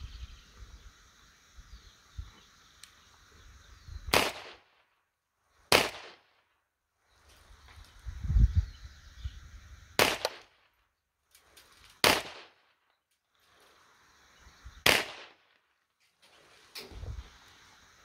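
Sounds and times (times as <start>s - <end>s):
pistol shots: 4.1s - 4.7s, 5.7s - 6.3s, 10.0s - 10.5s, 12.0s - 12.6s, 14.8s - 15.4s.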